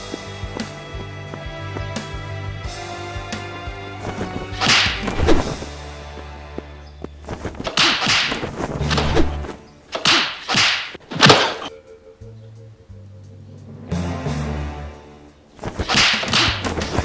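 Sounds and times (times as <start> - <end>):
background music with low drone: 0.0 - 7.3, 8.6 - 9.9, 11.6 - 17.0
whooshing punch swishes: 4.0 - 5.6, 7.3 - 11.7, 15.6 - 17.0
impact hits: 4.1 - 5.7.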